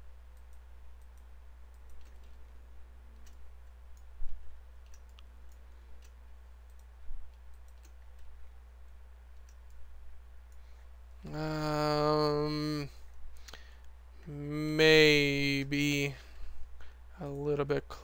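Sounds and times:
low electrical hum: 0.0s - 18.0s
computer mouse clicking: 0.3s - 2.5s, 3.2s - 9.9s.

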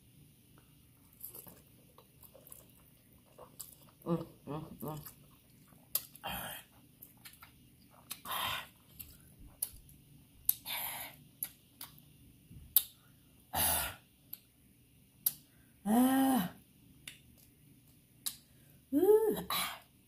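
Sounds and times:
mouth smacks while chewing: 4.9s - 6.2s, 7.0s - 9.8s, 11.4s - 12.0s
person humming: 18.9s - 19.5s.

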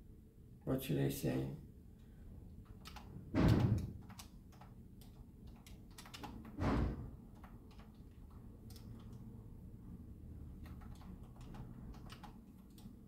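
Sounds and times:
keyboard keystroke clicks: 2.8s - 6.6s, 7.3s - 9.2s, 10.6s - 13.0s.

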